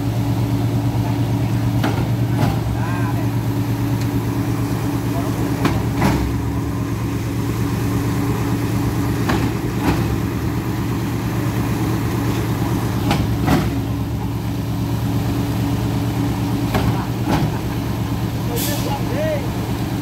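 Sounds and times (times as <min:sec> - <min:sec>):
truck engine idling: 0:00.0 - 0:20.0.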